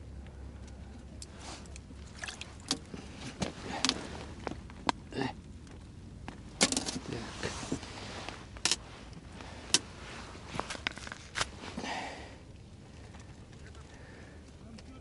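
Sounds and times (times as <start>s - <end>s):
short rustle: 6.7s - 12.0s.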